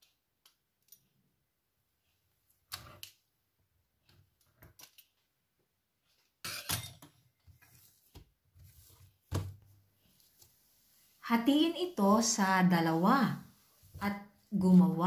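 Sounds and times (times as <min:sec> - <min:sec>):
dough cut and handled on countertop: 0:04.0 - 0:11.0.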